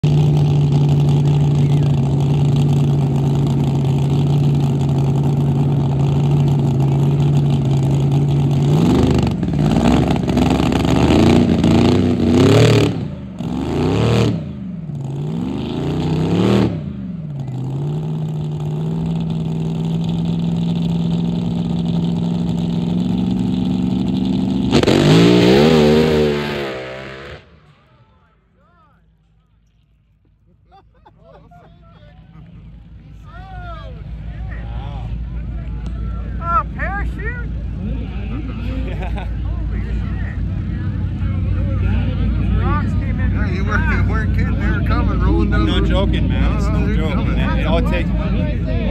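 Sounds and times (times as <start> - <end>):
car engine idling and revving: 0.0 - 48.9
car launching at full throttle: 23.3 - 27.6.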